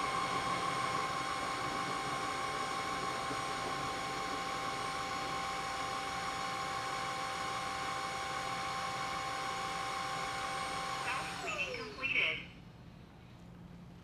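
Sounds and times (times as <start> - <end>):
floor scrubber motor whining: 0.0 - 12.4.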